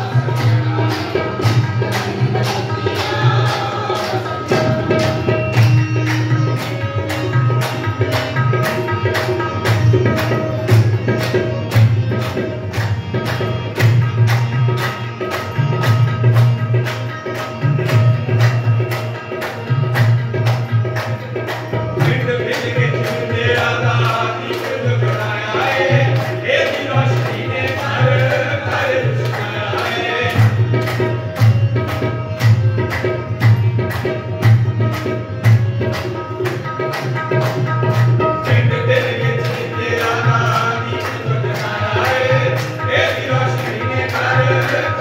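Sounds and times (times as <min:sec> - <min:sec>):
voices singing: 0:00.0 - 0:05.6, 0:21.9 - 0:31.2, 0:38.2 - 0:45.0
group clapping: 0:00.0 - 0:45.0
harmonium: 0:00.0 - 0:45.0
tabla playing: 0:00.0 - 0:45.0.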